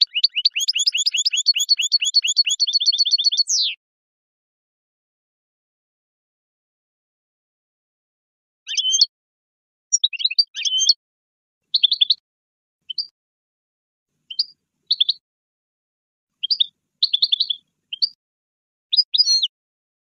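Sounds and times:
finch singing: 0.0s - 3.8s, 8.7s - 9.1s, 9.9s - 11.0s, 11.7s - 12.2s, 12.9s - 13.1s, 14.3s - 15.2s, 16.4s - 18.2s, 18.9s - 19.5s.

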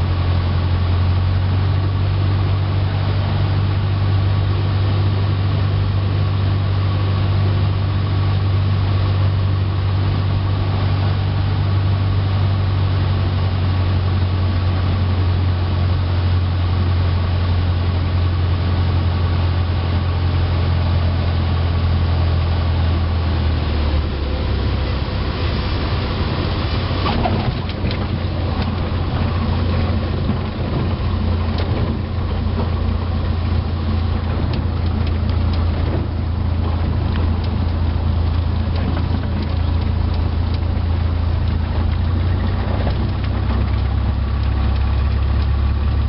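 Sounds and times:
light aircraft engine droning: 0.0s - 46.0s
wheels rolling on runway: 23.4s - 46.0s.

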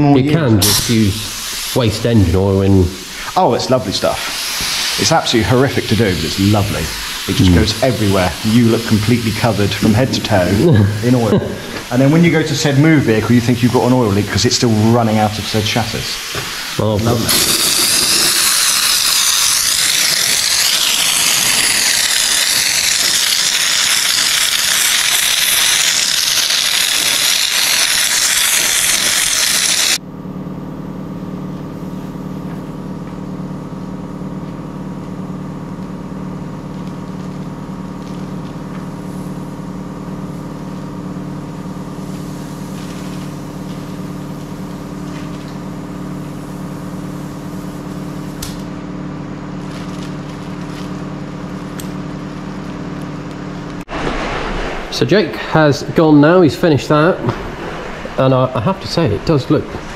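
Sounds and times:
machine humming: 0.0s - 59.9s
air spray gun hissing: 0.6s - 30.0s, 38.8s - 39.6s, 41.4s - 48.7s.

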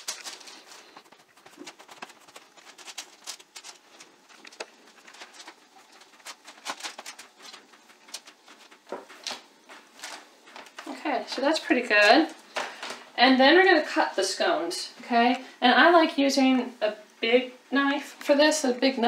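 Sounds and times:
hands patting dough: 0.0s - 11.4s.

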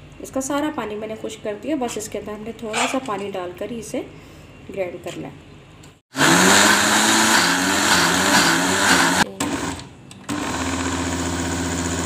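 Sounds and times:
electric blender motor running: 6.1s - 12.0s.

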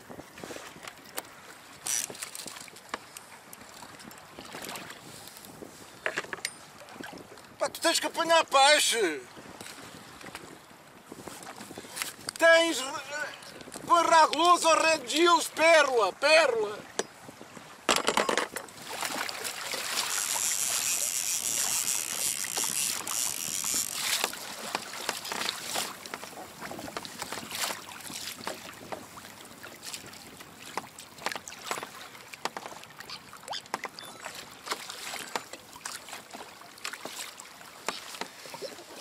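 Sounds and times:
wind on microphone: 0.0s - 2.6s, 3.8s - 7.6s, 9.3s - 14.0s, 16.8s - 30.8s
water slapping against kayak hull: 0.6s - 5.3s, 16.8s - 39.0s.

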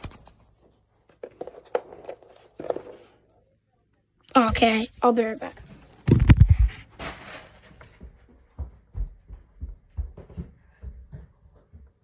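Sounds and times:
footsteps walking away: 7.7s - 12.0s.

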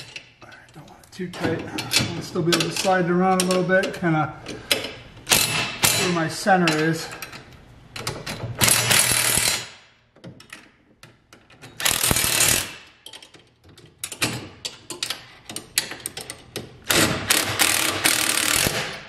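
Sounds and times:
wrench and metal parts clicking: 10.4s - 18.9s.

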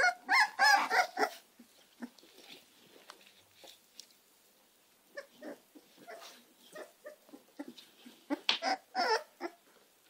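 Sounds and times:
puppies making short calls: 0.0s - 1.4s, 5.1s - 9.6s.

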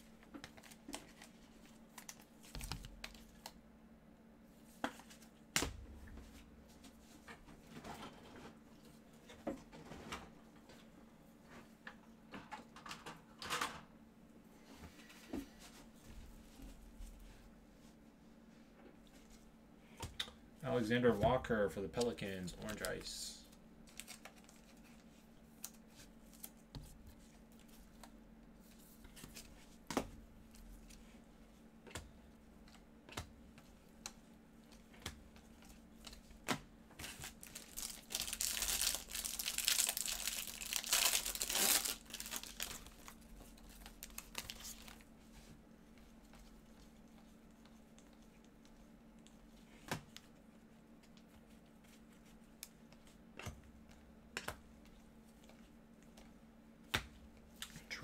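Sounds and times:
plastic wrapper crinkling and tearing: 23.8s - 24.8s, 37.0s - 45.1s.

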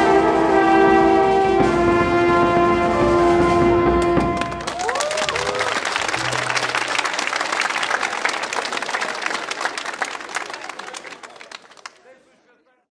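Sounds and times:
crowd applauding: 4.0s - 12.4s.

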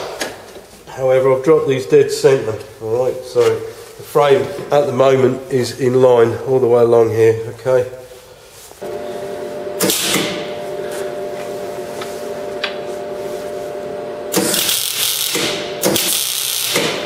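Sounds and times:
steady hum: 8.2s - 16.0s
welding arc crackle and sizzle: 9.8s - 10.4s, 14.3s - 17.0s.

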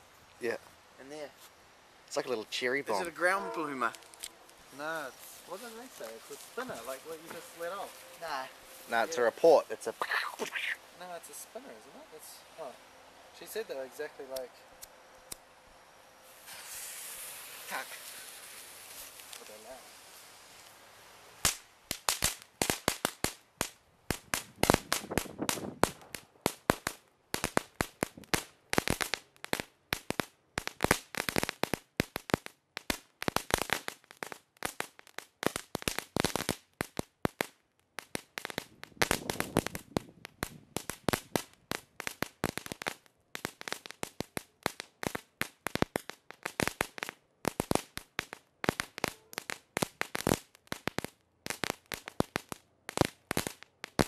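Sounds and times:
firework pops and bangs: 16.4s - 19.9s, 21.4s - 54.0s.

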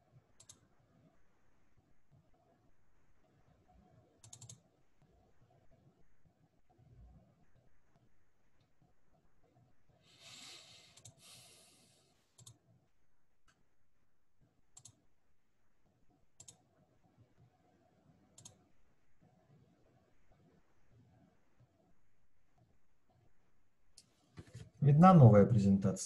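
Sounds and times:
faint computer mouse clicks: 0.4s - 0.7s, 4.2s - 4.6s, 10.9s - 11.2s, 12.3s - 12.6s, 14.7s - 15.0s, 16.4s - 16.6s, 18.3s - 18.6s.

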